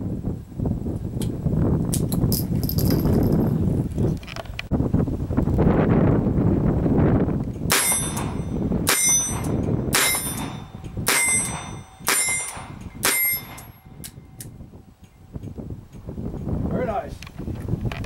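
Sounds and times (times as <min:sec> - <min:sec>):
revolver shots with metallic ring: 0:07.7 - 0:14.4.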